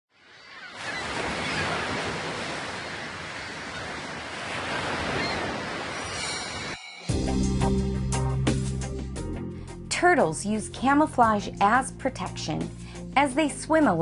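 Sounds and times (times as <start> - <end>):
ocean surf washing: 0.2 - 7.2.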